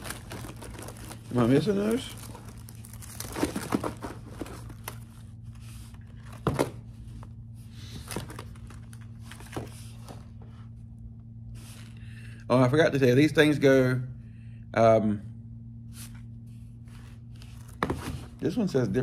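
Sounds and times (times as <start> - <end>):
packaging rustling and crinkling: 0.0 - 7.3, 8.0 - 10.3
steady low hum: 0.0 - 19.0.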